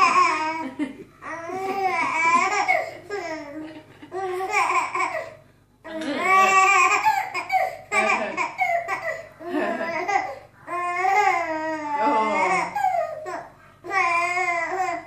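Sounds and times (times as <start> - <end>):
baby babbling: 6.2 - 9.3, 9.9 - 15.0.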